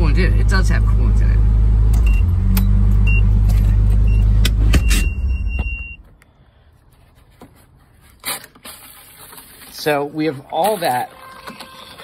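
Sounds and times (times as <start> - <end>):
high steady beep: 4.0 - 6.0.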